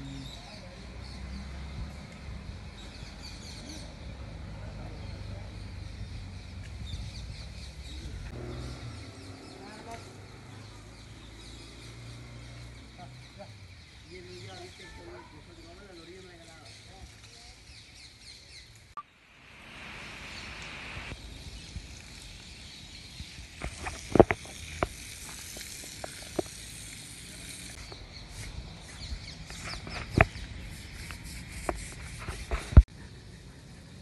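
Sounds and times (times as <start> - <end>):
hose water spraying and splashing: 14.1 - 32.9.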